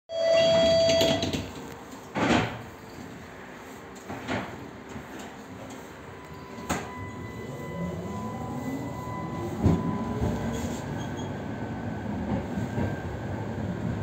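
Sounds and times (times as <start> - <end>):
warning tone: 0.1 - 1.4, 6.2 - 10.6
tram doors clattering: 0.2 - 14.0.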